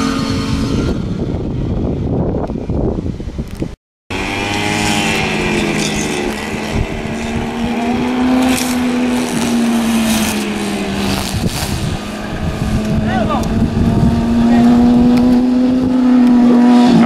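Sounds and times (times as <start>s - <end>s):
motorcycle engine at high revs: 0.0s - 1.9s, 4.1s - 17.0s.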